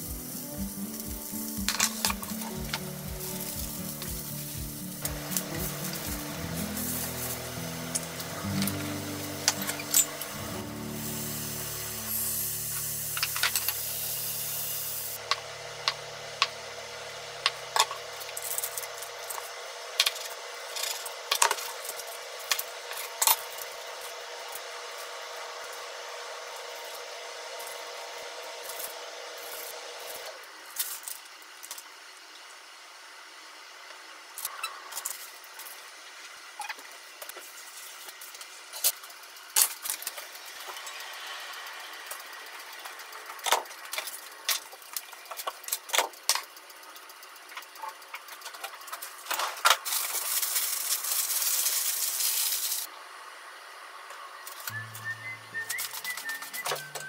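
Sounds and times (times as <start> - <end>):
sizzling in a frying pan: 0.0 - 19.2, 37.4 - 53.7.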